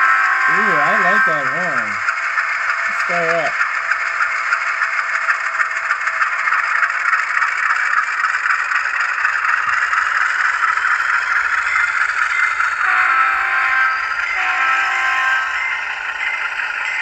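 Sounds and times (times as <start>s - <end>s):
multi-tone locomotive horn: 0.0s - 2.0s, 12.8s - 15.8s
model locomotive engine rattling: 0.0s - 17.0s.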